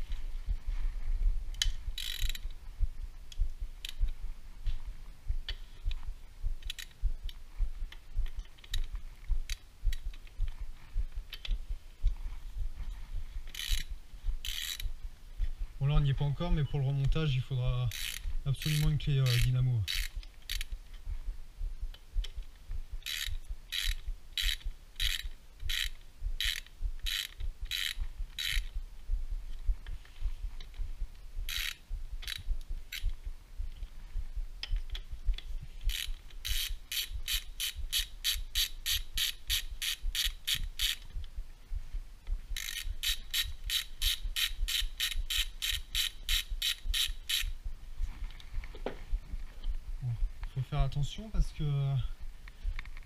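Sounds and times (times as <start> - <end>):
ratchet wrench clicking: 1.6 - 2.5, 6.6 - 7.0, 13.5 - 14.9, 17.8 - 20.7, 23.0 - 28.7, 31.5 - 33.1, 35.8 - 41.2, 42.6 - 47.6.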